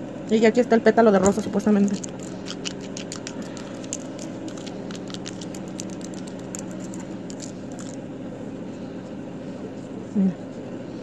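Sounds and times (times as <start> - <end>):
low hum: 0.0 - 11.0
glitter clicking in glass bowl: 1.9 - 8.0.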